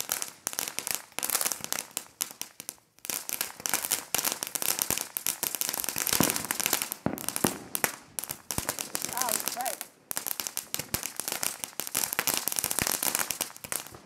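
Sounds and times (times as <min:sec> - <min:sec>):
fireworks crackling pops: 0:00.0 - 0:14.0.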